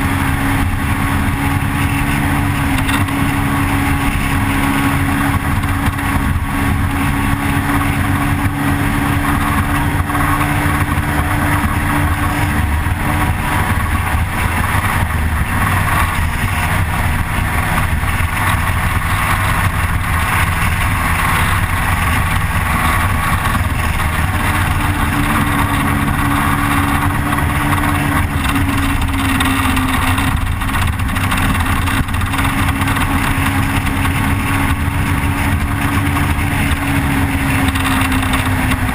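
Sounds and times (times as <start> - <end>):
motorcycle engine running: 0.0 - 38.9
wind rushing over camera: 0.0 - 38.9.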